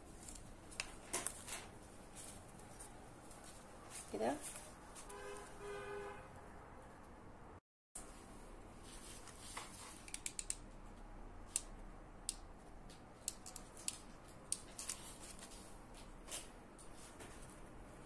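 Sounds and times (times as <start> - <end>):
light clicks and paper crinkles: 0.0 - 5.5, 8.8 - 11.0, 12.8 - 17.8.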